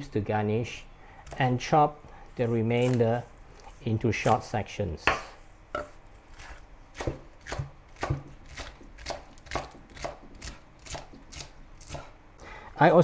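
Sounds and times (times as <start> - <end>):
knife chopping on wooden board: 5.0 - 12.1.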